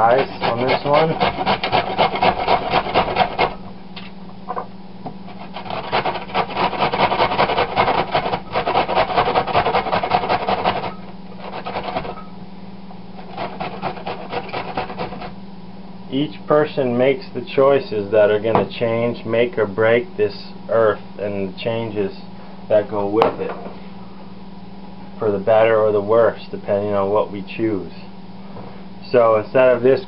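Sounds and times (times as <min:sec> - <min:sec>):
vegetable scraped on metal grater: 0:00.0 - 0:03.6, 0:05.3 - 0:12.2, 0:13.2 - 0:15.4.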